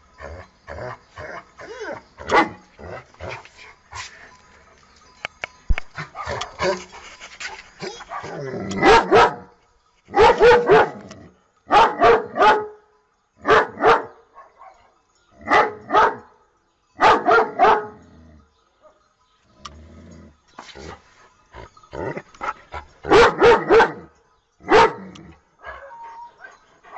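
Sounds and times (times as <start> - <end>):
dog barking: 2.3 - 2.6, 8.0 - 9.5, 10.1 - 11.0, 11.7 - 12.8, 13.4 - 14.8, 15.5 - 16.2, 17.0 - 18.0, 23.1 - 24.1, 24.7 - 25.0.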